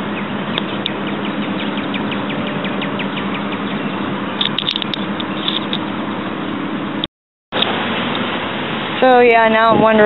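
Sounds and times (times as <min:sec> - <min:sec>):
bird chirping: 0:00.0 - 0:05.7
rushing background noise: 0:00.0 - 0:10.0.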